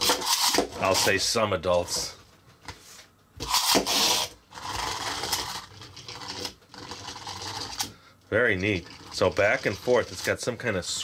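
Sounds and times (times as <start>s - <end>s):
toy pullback motor whirring: 0.0s - 0.7s, 3.4s - 7.9s
toy pushed along table: 3.4s - 7.9s, 8.6s - 10.3s.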